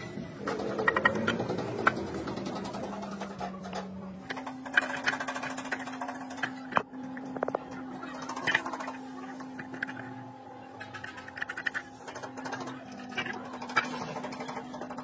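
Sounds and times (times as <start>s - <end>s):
steady mechanical hum: 0.0s - 15.0s
heavy metal parts clicking: 0.4s - 9.0s.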